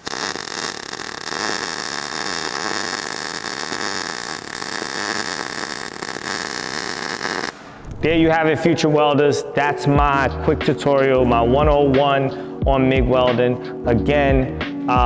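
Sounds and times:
welding arc crackling buzz: 0.0 - 8.0.

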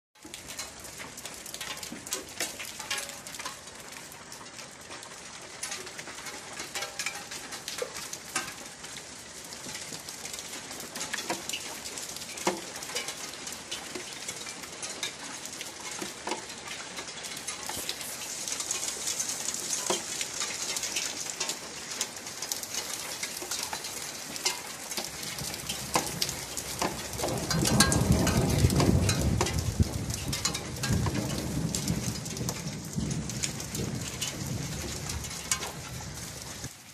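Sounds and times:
rain on concrete and roofs: 0.2 - 36.9
thunder rumbling: 25.3 - 36.7.

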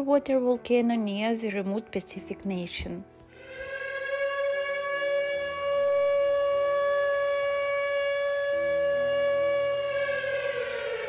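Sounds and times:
warning siren steady tone: 3.4 - 11.0.

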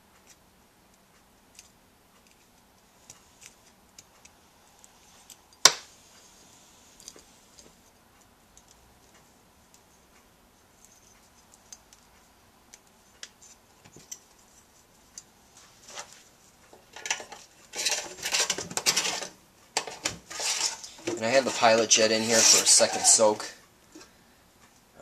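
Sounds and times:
faint clicks and metal taps: 7.0 - 15.3.

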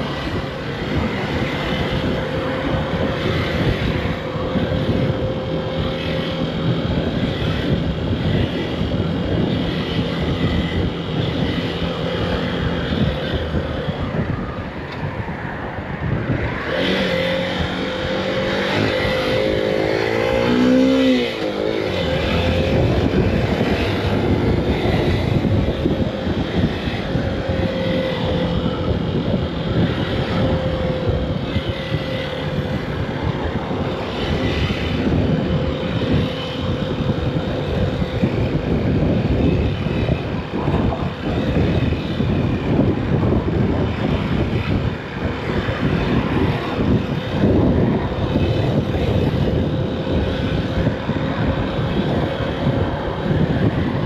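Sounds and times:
road and traffic noise: 0.0 - 54.0
motorcycle engine running: 16.1 - 54.0.

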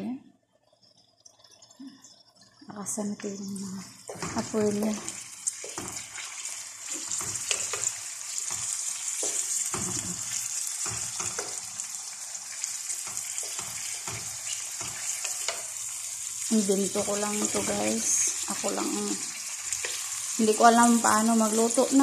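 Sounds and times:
chicken sizzling in hot oil: 3.1 - 22.0
wooden spatula scraping a pan: 4.1 - 11.9, 12.9 - 15.9.

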